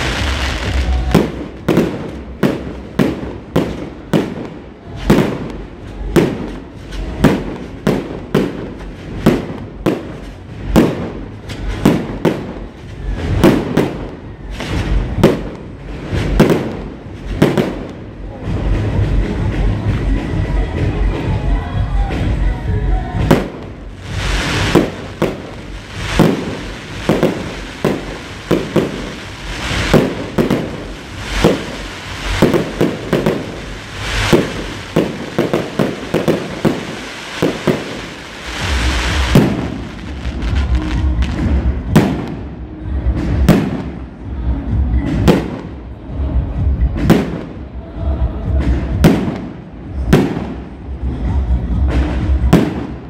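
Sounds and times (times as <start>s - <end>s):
deep firework booms: 0.0s - 21.2s, 23.2s - 44.2s
fireworks bangs and crackling: 0.0s - 53.0s.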